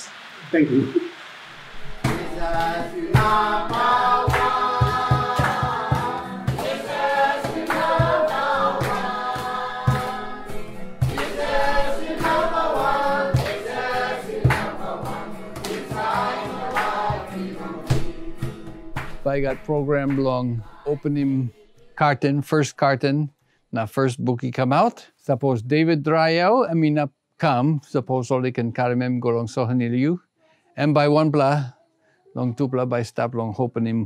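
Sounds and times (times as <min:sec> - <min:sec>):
choir singing gospel: 0:00.0 - 0:22.3
percussive beat: 0:01.9 - 0:21.0.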